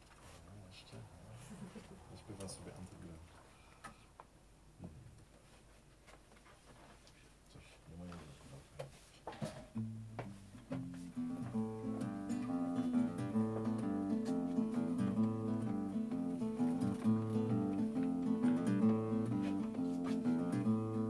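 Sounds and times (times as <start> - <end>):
acoustic guitar chords: 9.8 - 21.0.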